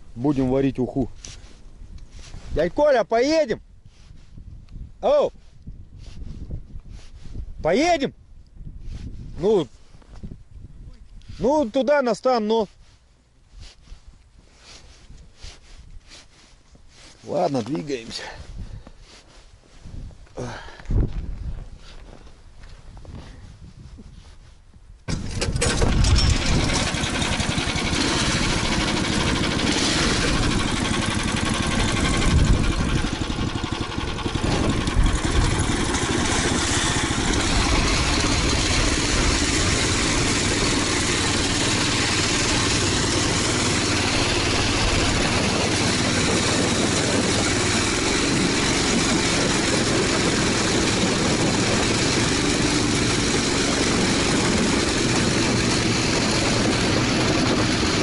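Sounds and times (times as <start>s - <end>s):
vehicle engine starting and running: 25.1s - 58.0s.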